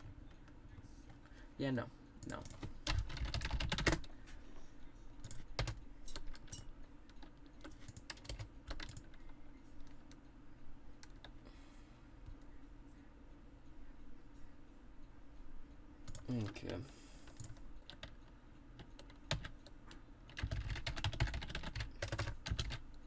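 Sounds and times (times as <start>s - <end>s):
computer keyboard typing: 2.2s - 4.1s, 5.2s - 10.2s, 10.9s - 11.4s, 16.0s - 23.0s.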